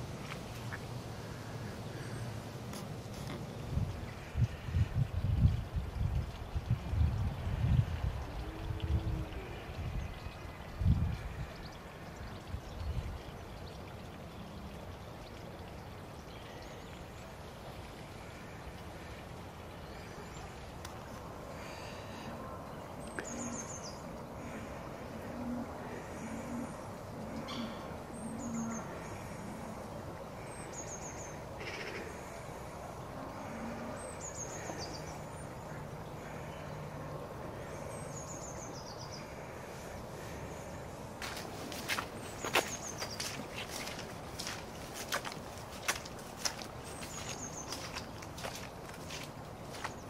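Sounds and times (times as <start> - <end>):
wind rustling through trees: 0.0 - 50.0
wind buffeting microphone: 3.6 - 11.7
songbird phrase: 22.7 - 24.1.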